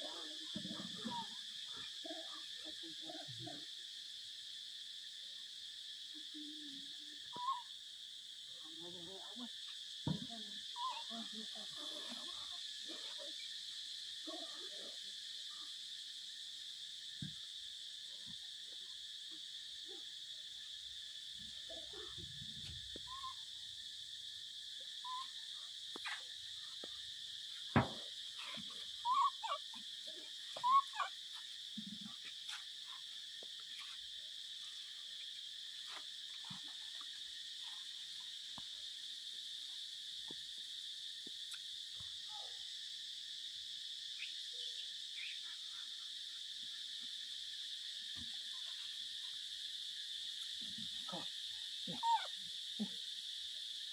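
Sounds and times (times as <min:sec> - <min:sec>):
high insect drone: 0:00.0 - 0:53.9
monkeys squeaky calls: 0:10.8 - 0:11.1, 0:28.4 - 0:29.8, 0:30.6 - 0:31.2, 0:51.9 - 0:52.3.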